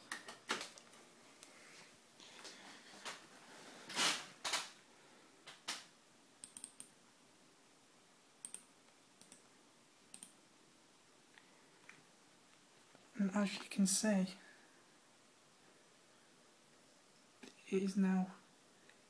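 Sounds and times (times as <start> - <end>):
computer mouse clicks: 6.4 - 6.9, 8.4 - 9.4, 10.1 - 10.4.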